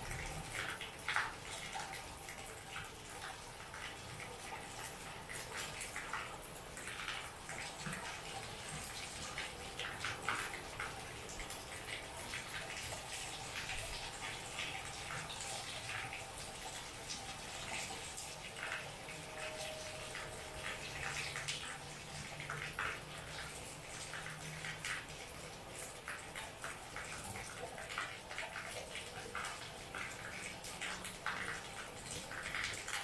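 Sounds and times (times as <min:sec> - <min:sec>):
water drips and splashes: 0:00.0 - 0:33.0.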